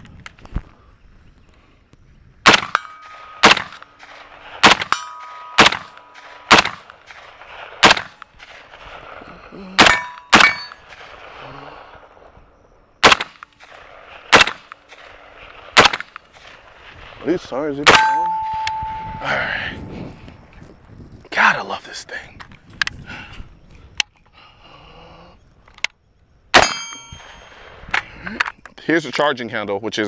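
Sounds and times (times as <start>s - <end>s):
rifle shots: 2.4s - 9.1s, 9.8s - 11.4s, 13.0s - 16.8s, 17.8s - 19.0s, 26.5s - 27.6s
bullets ringing on steel targets: 2.6s - 4.1s, 4.8s - 6.4s, 9.8s - 10.8s, 17.9s - 19.3s, 26.6s - 27.6s.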